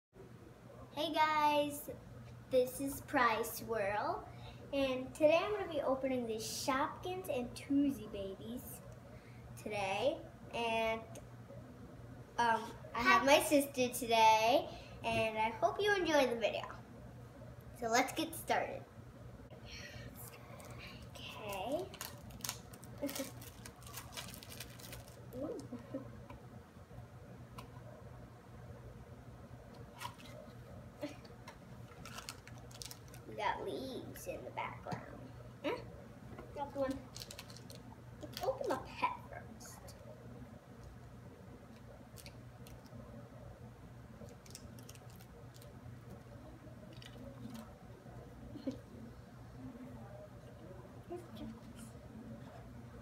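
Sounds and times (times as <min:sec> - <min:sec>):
steady low hum: 0:00.2 - 0:53.0
plastic wrapper crinkling: 0:20.5 - 0:25.8, 0:31.8 - 0:33.3, 0:36.7 - 0:38.7, 0:44.2 - 0:45.8.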